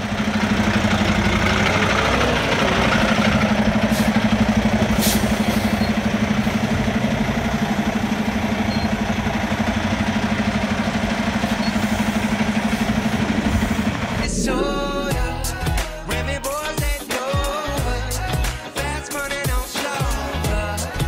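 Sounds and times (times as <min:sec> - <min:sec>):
diesel truck engine idling: 0:00.0 - 0:16.8.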